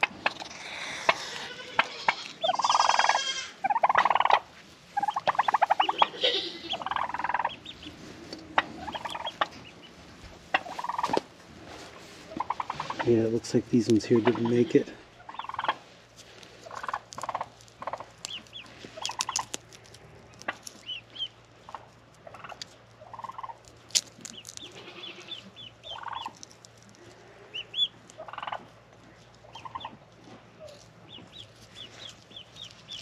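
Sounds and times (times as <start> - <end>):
turkeys gobbling: 0.0 - 13.2, 14.0 - 19.7, 20.3 - 23.7, 24.3 - 33.0
chicks peeping: 0.0 - 15.9, 16.6 - 23.6, 24.2 - 26.4, 27.4 - 33.0.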